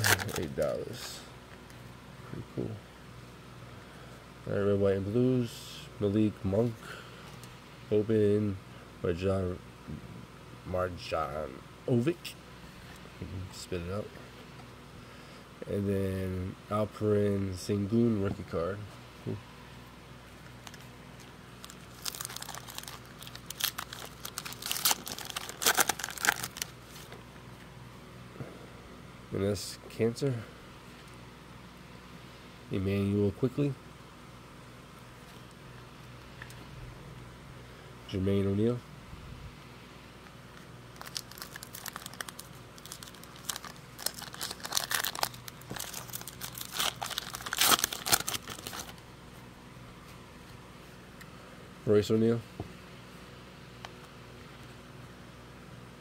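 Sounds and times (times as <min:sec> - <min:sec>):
foil wrapper crinkling and tearing: 0:00.0 - 0:00.6, 0:20.6 - 0:27.0, 0:40.9 - 0:49.0.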